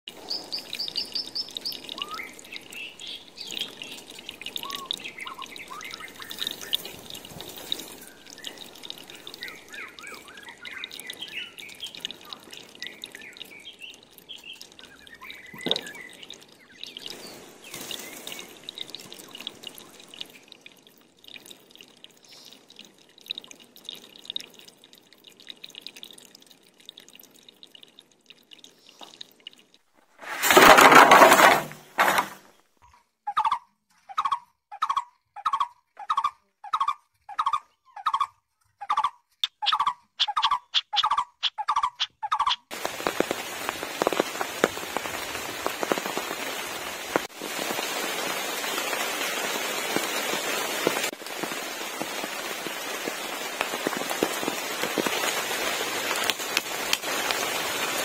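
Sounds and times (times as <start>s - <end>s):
small birds chirping: 0.1s - 20.7s, 22.1s - 22.8s, 32.8s - 43.3s
water dripping: 0.1s - 30.4s, 39.4s - 58.0s.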